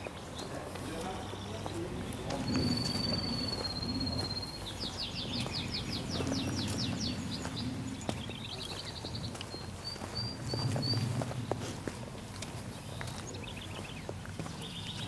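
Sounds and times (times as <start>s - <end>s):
songbird singing: 0.0s - 11.6s, 12.4s - 15.0s.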